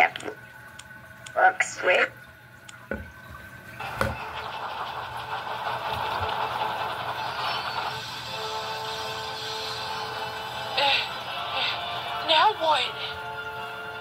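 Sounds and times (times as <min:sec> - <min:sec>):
steam locomotive hissing: 0:03.8 - 0:13.4.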